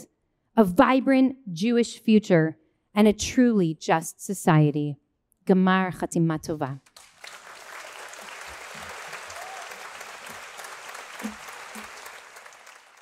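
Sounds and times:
crowd applauding: 7.0 - 13.0.

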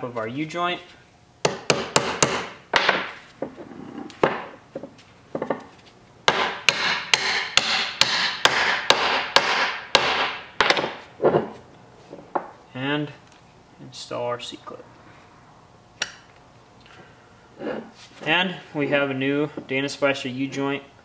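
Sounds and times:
hammer striking metal: 1.4 - 3.0, 6.3 - 10.9.

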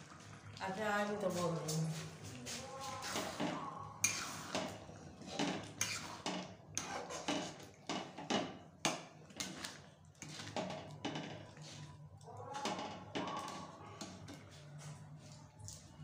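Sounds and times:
metal spatula scraping a pot: 2.8 - 8.3.

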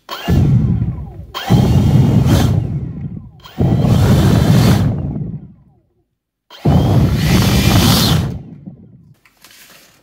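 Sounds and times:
leaf blower rush of air: 3.6 - 5.2, 6.6 - 8.4.

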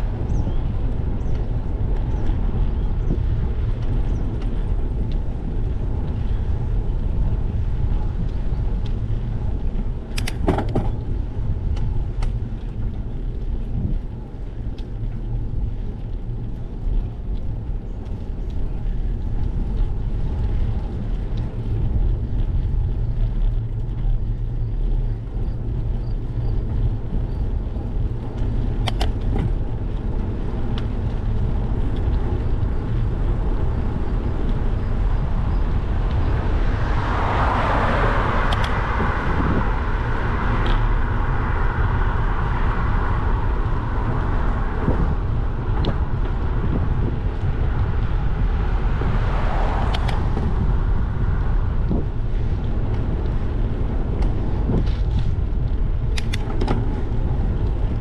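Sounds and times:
wind rumble on microphone: 0.0 - 58.0
car passing: 26.2 - 58.0
sharp clicks: 38.5 - 38.8, 56.1 - 56.8.

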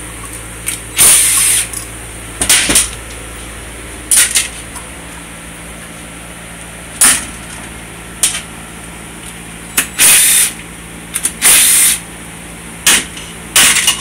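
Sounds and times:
impact driver hammering bursts: 0.9 - 1.7, 9.8 - 10.6, 11.2 - 12.0.

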